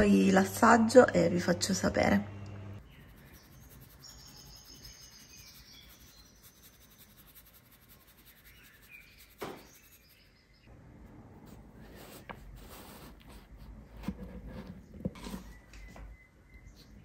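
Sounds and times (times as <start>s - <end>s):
faint high chirping tones: 15.2s - 17.0s.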